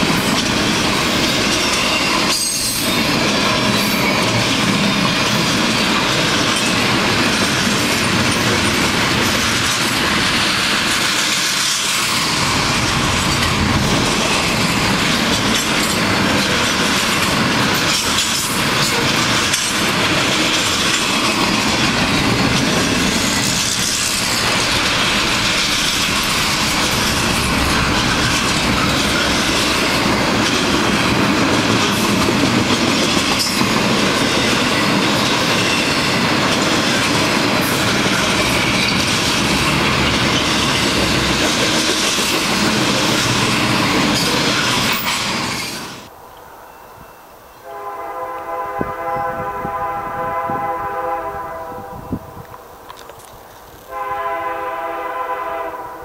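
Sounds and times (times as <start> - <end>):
freight train rumbling past: 0.0 - 56.0
locomotive horn: 47.6 - 52.5, 53.9 - 56.0.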